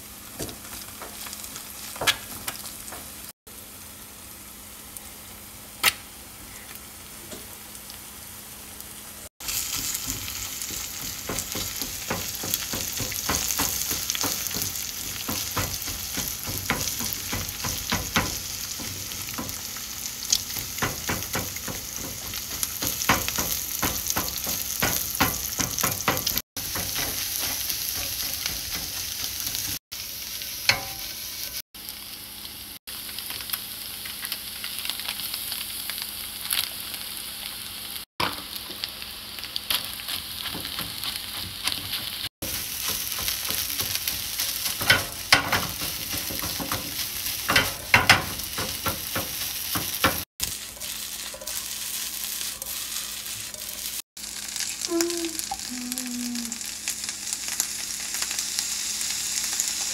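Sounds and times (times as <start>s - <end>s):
eggs sizzling in oil: 0.0s - 59.9s
spatula tapping and scraping pan: 9.8s - 19.7s, 20.3s - 29.8s, 30.7s - 31.1s, 39.7s - 51.6s.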